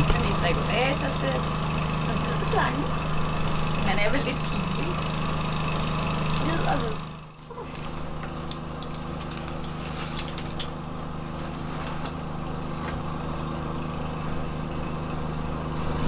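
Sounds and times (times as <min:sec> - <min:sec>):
motor running steadily: 0:00.0 - 0:16.0.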